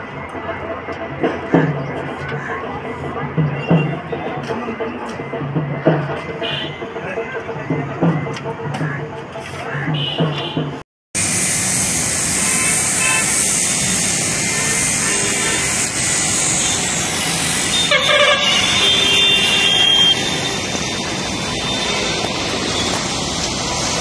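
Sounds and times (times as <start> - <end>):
road traffic noise: 0.0 - 24.0
vehicle horn: 6.4 - 6.8, 10.0 - 10.8, 12.4 - 20.7.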